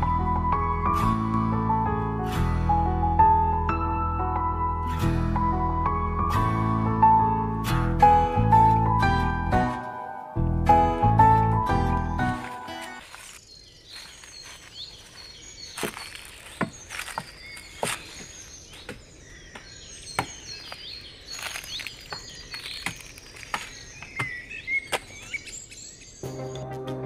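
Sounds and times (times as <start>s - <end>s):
birds chirping: 11.8s - 26.7s.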